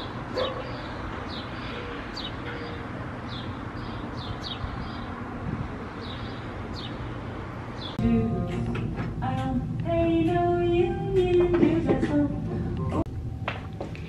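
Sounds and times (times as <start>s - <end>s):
outdoor background noise: 0.0s - 14.0s
music: 8.0s - 13.7s.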